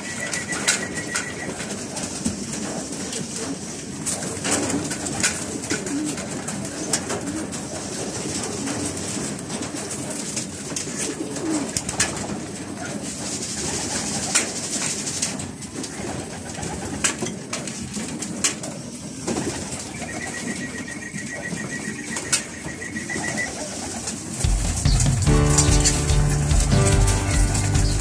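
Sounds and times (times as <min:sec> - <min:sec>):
pigeons cooing: 0:00.0 - 0:14.8, 0:18.7 - 0:25.0
rapid high-pitched trill: 0:24.5 - 0:28.0.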